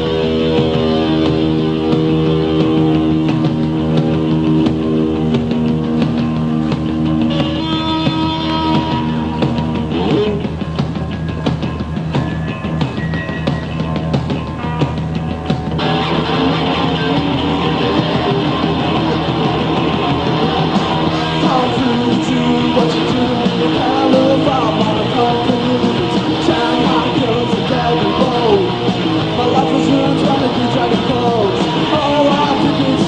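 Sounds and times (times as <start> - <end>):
loud electric guitars: 0.0 - 33.0
person singing: 21.2 - 33.0.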